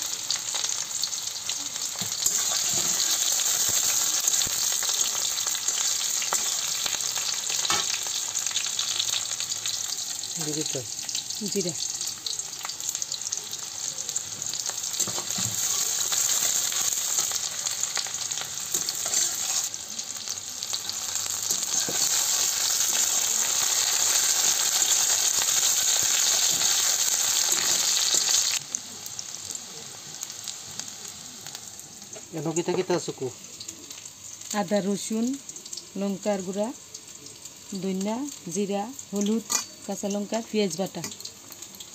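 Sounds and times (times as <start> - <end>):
spices sizzling in hot oil: 0.0 - 41.9
metal spatula stirring: 18.7 - 19.7, 21.5 - 23.1.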